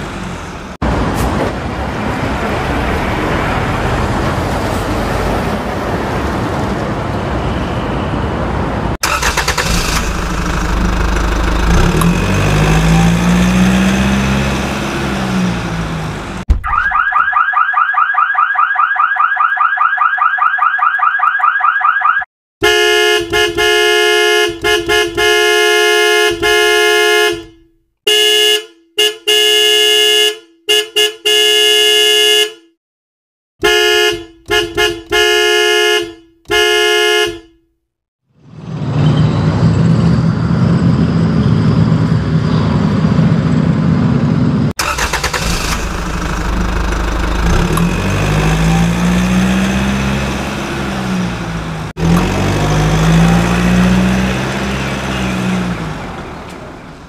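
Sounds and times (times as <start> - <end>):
engine rumble revving: 8.9 - 16.5, 38.4 - 57.0
vehicle horn honking: 22.6 - 32.8, 33.6 - 37.6.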